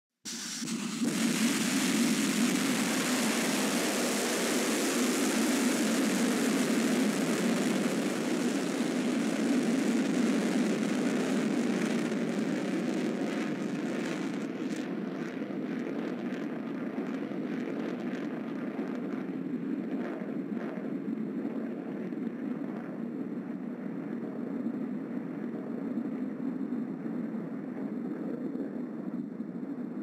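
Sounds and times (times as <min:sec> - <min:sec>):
rocket engine roaring: 0:00.3 - 0:30.0.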